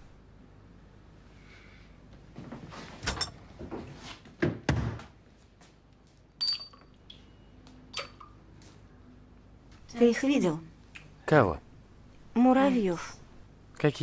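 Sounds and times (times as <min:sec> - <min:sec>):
sharp glass clinks: 0:06.4 - 0:06.9.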